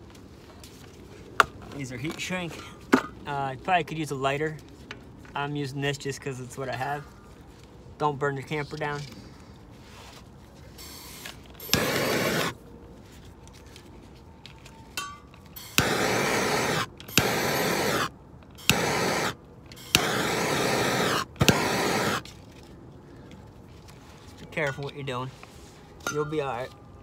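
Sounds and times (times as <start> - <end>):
gas torch flame hissing: 10.8 - 12.6, 15.6 - 22.3
gas torch igniter click: 11.1 - 12.5, 15.6 - 22.2.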